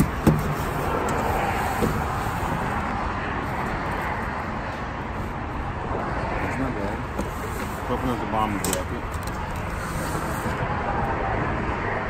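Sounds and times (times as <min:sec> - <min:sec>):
steady outdoor rumble: 0:00.0 - 0:12.0.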